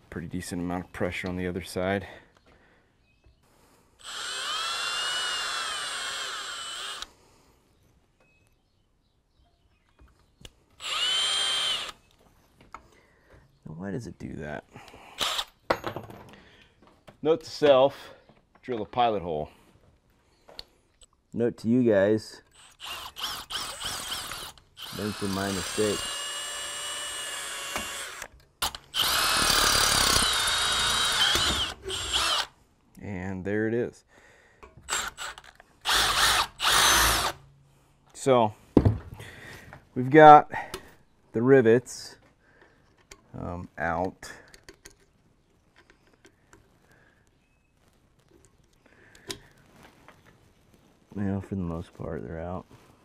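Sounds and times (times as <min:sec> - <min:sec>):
cordless drill whining into metal: 0:04.0 - 0:07.1, 0:10.8 - 0:12.1, 0:15.2 - 0:15.6, 0:22.5 - 0:32.5, 0:34.8 - 0:37.5.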